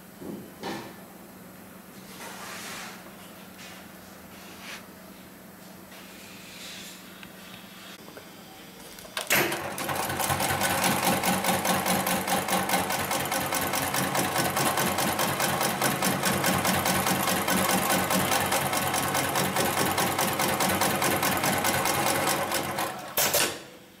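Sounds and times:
sewing machine stitching: 0:09.2 - 0:23.6.

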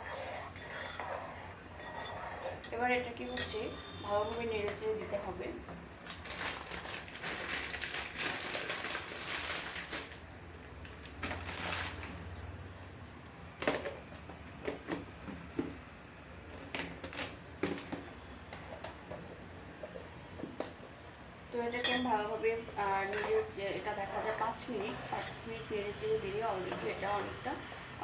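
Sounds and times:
spoon clinking in metal pot: 0:21.8 - 0:22.1, 0:27.0 - 0:27.4.

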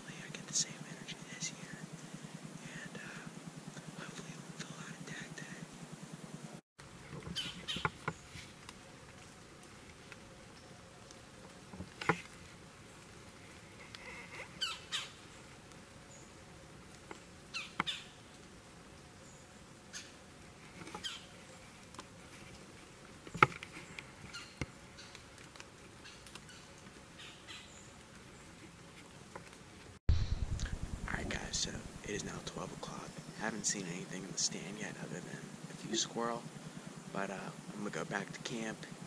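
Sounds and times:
rustles and twig snaps: 0:06.8 - 0:37.0
bird calls: 0:07.2 - 0:08.6, 0:14.0 - 0:15.5, 0:17.5 - 0:18.3, 0:19.2 - 0:20.2, 0:20.8 - 0:21.8, 0:23.3 - 0:25.3, 0:26.0 - 0:28.7.

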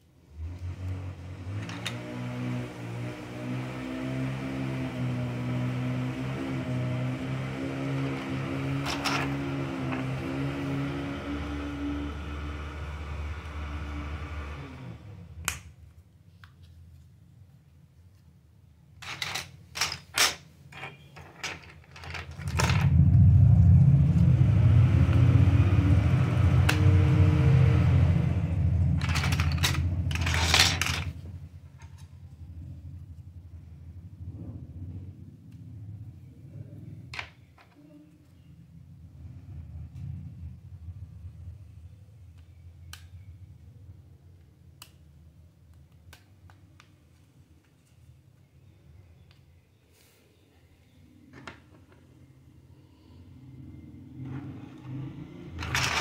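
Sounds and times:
low steady hum: 0:05.0 - 0:56.0
loud steady low rumble: 0:22.3 - 0:37.2, 0:38.4 - 0:44.3
plastic toy pieces clicking: 0:29.0 - 0:31.1.

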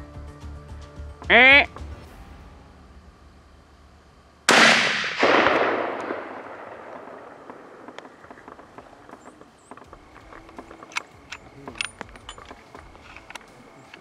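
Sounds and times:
rifle shot with echo: 0:04.5 - 0:12.3.

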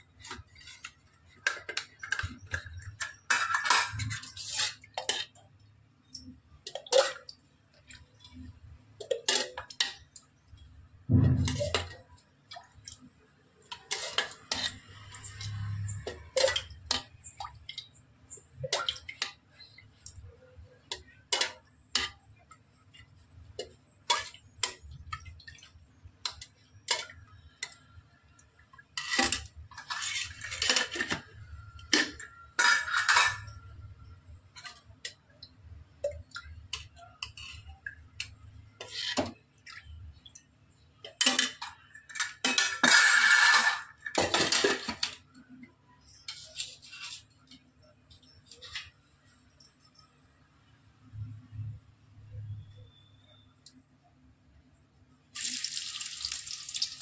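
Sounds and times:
oil pouring: 0:55.4 - 0:57.0.

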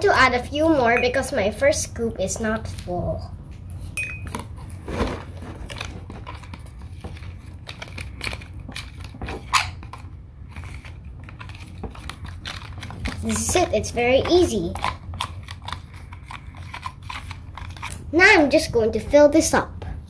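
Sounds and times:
steady low hum: 0:00.0 - 0:20.0
spoon scraping plastic tub: 0:04.4 - 0:17.9.

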